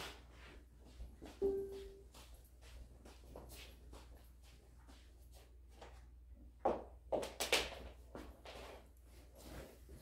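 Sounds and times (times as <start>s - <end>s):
faint room noise: 0.0s - 10.0s
short mid-pitched tone: 1.4s - 2.0s.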